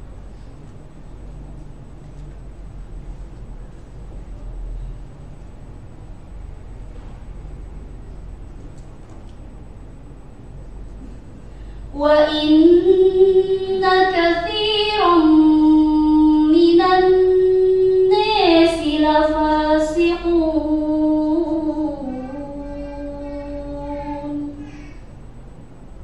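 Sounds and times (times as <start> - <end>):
girl reciting melodically: 11.6 - 25.3.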